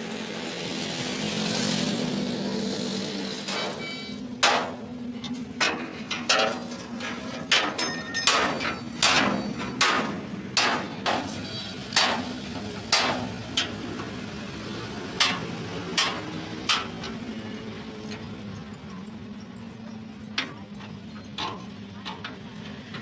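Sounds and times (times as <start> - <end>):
hammer striking metal: 3.4 - 4.9, 5.6 - 13.7, 15.2 - 16.9.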